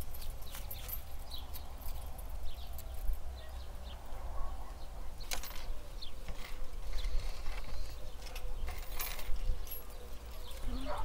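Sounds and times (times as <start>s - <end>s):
metal hooks clinking on chains: 0.0s - 3.3s, 5.2s - 11.0s.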